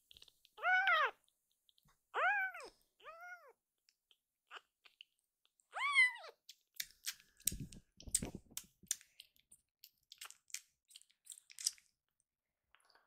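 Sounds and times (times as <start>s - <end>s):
kitten meow: 0.6s - 1.2s, 2.1s - 3.6s, 5.7s - 6.4s
kitten suckling wet clicks: 6.4s - 12.1s.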